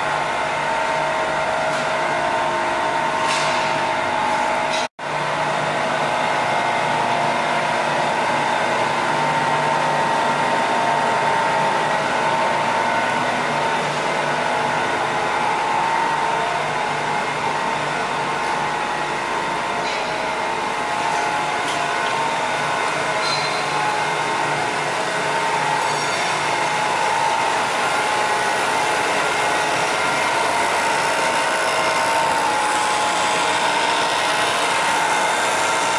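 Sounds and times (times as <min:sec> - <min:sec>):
glass edging machine whirring: 0:20.8 - 0:35.9.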